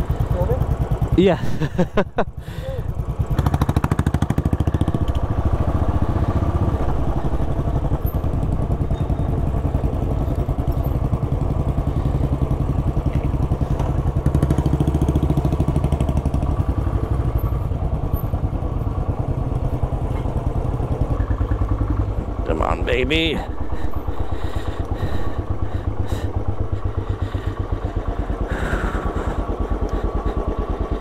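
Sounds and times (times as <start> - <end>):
motorcycle engine thumping: 10.5 - 16.6.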